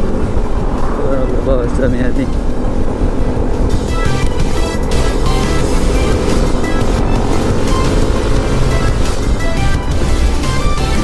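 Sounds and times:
low rumble of riding noise: 0:00.0 - 0:11.0
background music with held notes: 0:03.6 - 0:11.0.

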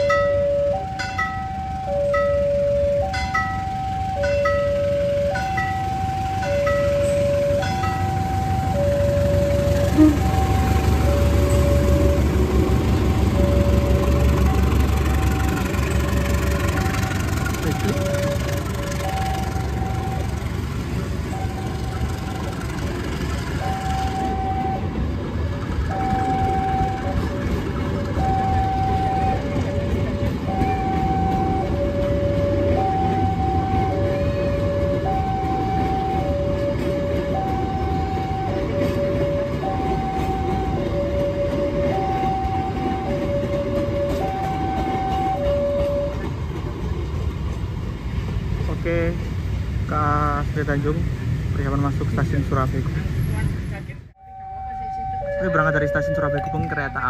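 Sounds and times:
level crossing two-tone alarm: 0:00.0 - 0:12.4, 0:13.0 - 0:14.8, 0:17.6 - 0:20.5, 0:21.2 - 0:22.3, 0:23.6 - 0:25.0, 0:25.9 - 0:46.3, 0:54.2 - 0:57.0
low rumble of railway engine: 0:00.0 - 0:57.0.

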